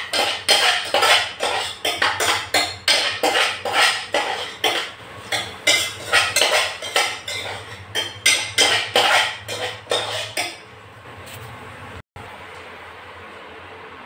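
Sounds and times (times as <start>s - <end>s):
food frying: 0.0s - 10.7s
utensil scraping a saucepan: 0.0s - 10.7s.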